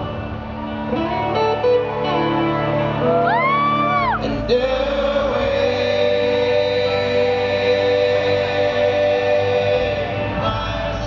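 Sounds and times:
acoustic guitar: 0.0s - 11.0s
high whoop: 3.0s - 4.2s.

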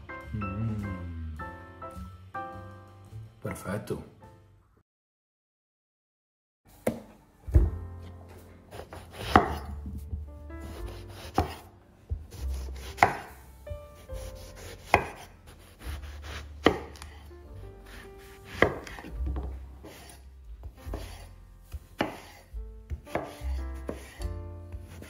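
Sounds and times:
knife slicing eggplant: 8.7s - 10.0s, 10.6s - 11.7s, 12.3s - 13.4s, 14.0s - 17.2s, 17.9s - 20.2s, 20.8s - 25.0s
knife knocking on wooden board: 18.5s - 19.6s.

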